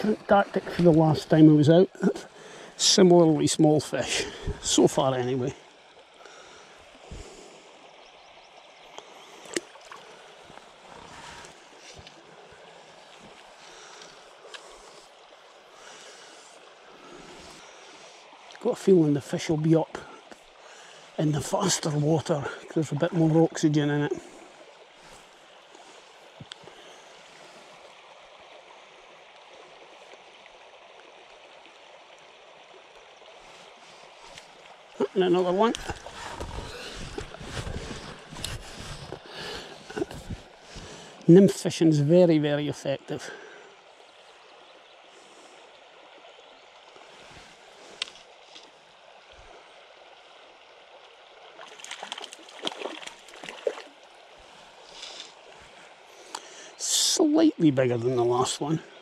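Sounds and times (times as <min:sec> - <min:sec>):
stream running over stones: 0:00.0 - 0:59.0
fish splashing at the surface: 0:51.5 - 0:54.0.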